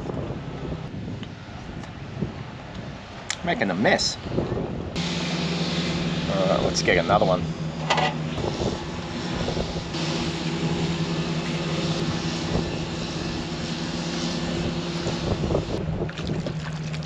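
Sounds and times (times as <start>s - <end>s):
engine droning: 3.0s - 17.0s.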